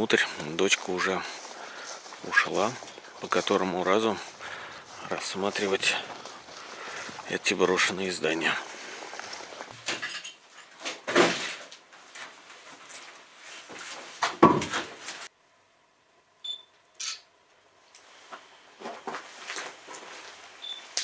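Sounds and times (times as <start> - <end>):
footsteps on debris: 0.2 - 9.8, 18.8 - 20.5.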